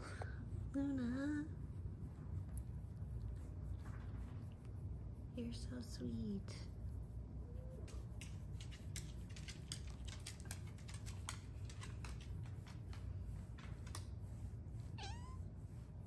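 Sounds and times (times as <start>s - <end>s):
fingers scratching fur: 1.8s - 16.0s
kitten meowing: 15.0s - 15.4s.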